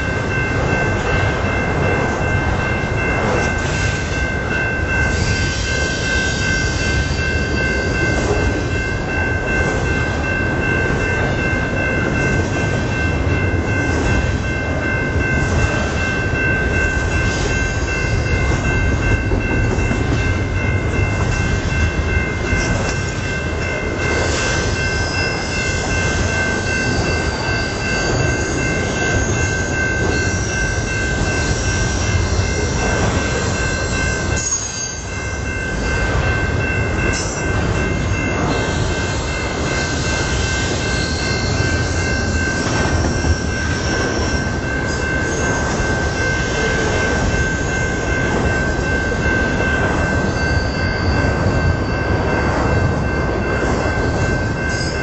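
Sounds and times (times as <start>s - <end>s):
crossing bell ringing: 0.0s - 55.0s
train rumbling over rails: 0.0s - 55.0s
train wheel squeal: 0.0s - 55.0s.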